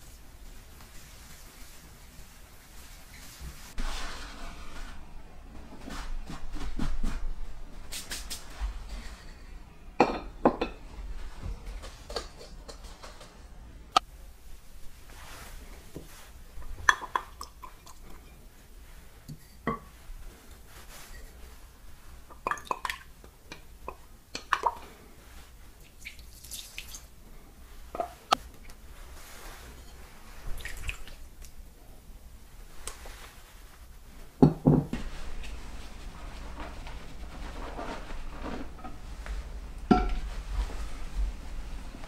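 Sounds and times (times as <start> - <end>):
hands rubbing flour in a bowl: 0.0 - 5.1, 14.3 - 22.4, 24.8 - 31.4, 35.0 - 42.0
water dripping and pouring: 25.8 - 27.1, 30.5 - 31.2.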